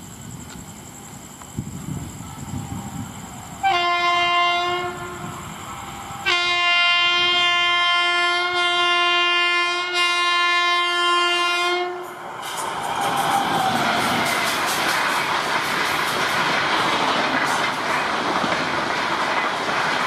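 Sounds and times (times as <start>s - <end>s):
train rumbling: 0.0s - 20.0s
locomotive horn blasts: 3.6s - 5.2s, 6.2s - 12.0s.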